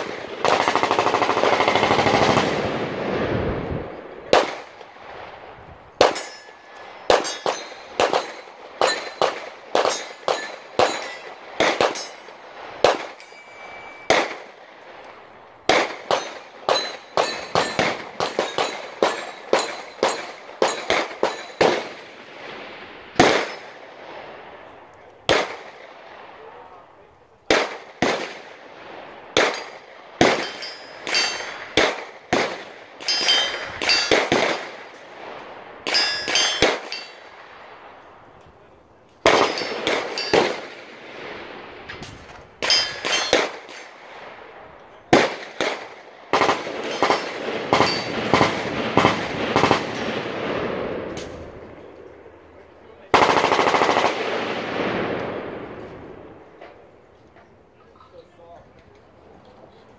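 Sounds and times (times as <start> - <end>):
gunshots with echo: 4.3 - 4.8, 6.0 - 14.6, 15.6 - 23.8, 29.3 - 37.9, 39.2 - 41.8, 42.6 - 44.5, 45.1 - 51.9.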